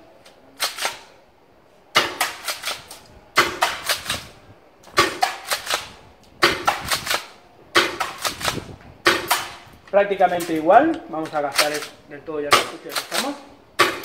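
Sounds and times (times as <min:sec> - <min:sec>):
airsoft shotgun firing: 0:00.6 - 0:01.1, 0:01.9 - 0:09.8, 0:11.5 - 0:14.0
pellets clicking on target: 0:04.9 - 0:09.6.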